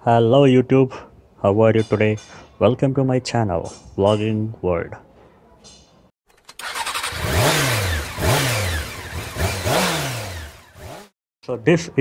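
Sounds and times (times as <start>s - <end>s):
engine revving in blips: 6.5s - 11.2s.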